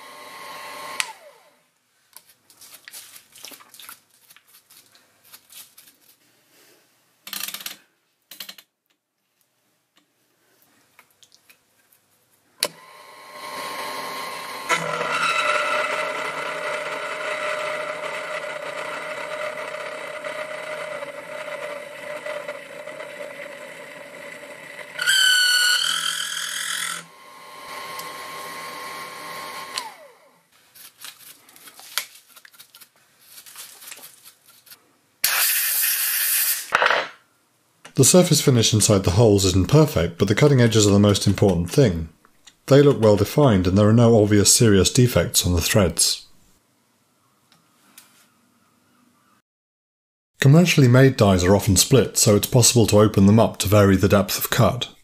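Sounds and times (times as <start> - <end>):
milling machine motor: 0.0 - 1.4, 12.6 - 30.2
cutter high squeal: 25.0 - 27.1.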